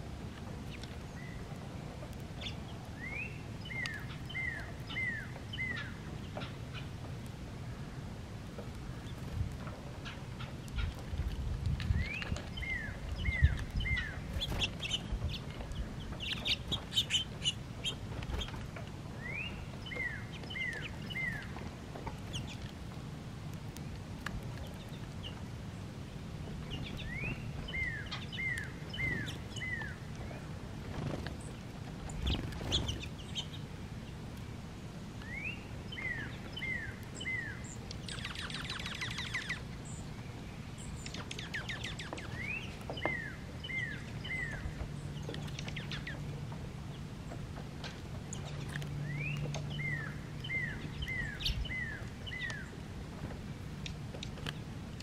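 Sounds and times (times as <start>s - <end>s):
bird chirps: 2.4s - 6.9s, 11.9s - 18.6s, 19.2s - 21.6s, 26.7s - 30.4s, 35.2s - 40.2s, 40.8s - 46.3s, 48.3s - 52.8s.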